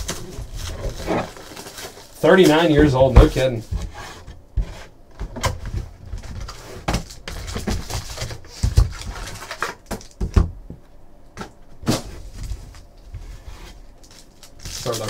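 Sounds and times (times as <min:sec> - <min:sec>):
foil packs crinkling: 0:00.0 - 0:03.6, 0:06.2 - 0:10.2, 0:13.7 - 0:15.0.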